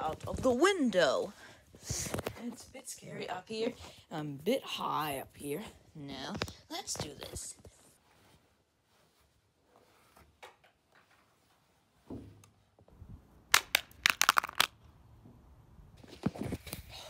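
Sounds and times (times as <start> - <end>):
phone cracking and clattering: 13.5 - 14.7.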